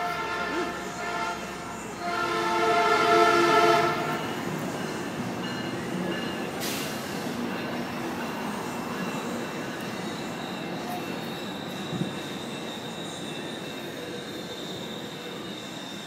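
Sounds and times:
locomotive air horn blasts: 0.0s - 4.2s
train rumbling: 0.0s - 16.0s.

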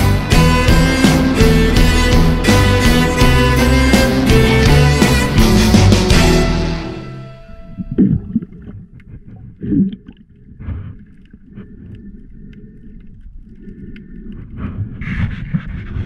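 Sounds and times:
underwater rumble and gurgle: 7.5s - 16.0s
faint clicks: 8.6s - 14.8s.

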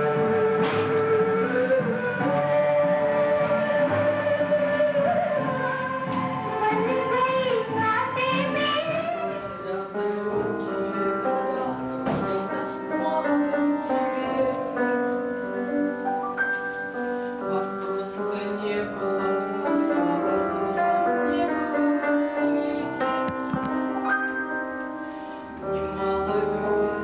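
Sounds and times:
piano playing: 0.0s - 27.0s
woman singing: 6.5s - 16.0s, 17.3s - 24.1s, 25.6s - 27.0s.

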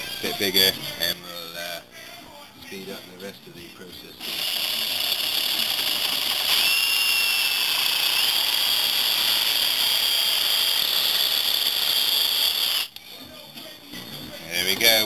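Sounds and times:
reciprocating saw cutting metal: 4.2s - 12.9s.

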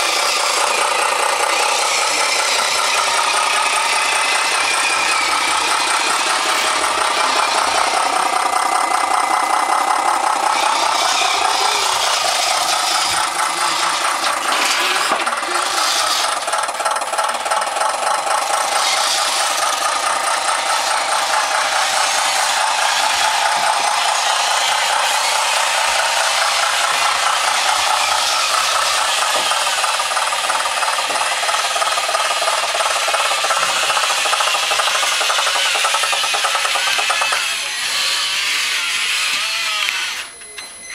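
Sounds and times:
small electric motors whirring: 0.0s - 17.7s, 18.4s - 40.9s.

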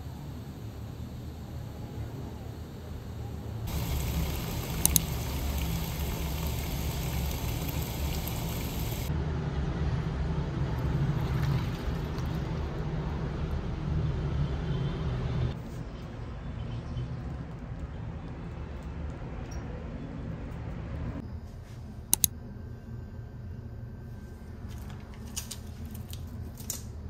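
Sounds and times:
city traffic rumble: 1.6s - 21.2s
washing machine running: 2.8s - 9.1s
sharp clicks: 3.7s - 9.1s.

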